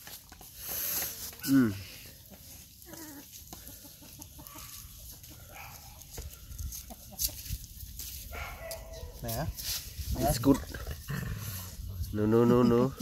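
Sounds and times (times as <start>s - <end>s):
chickens clucking: 0.2s - 8.0s.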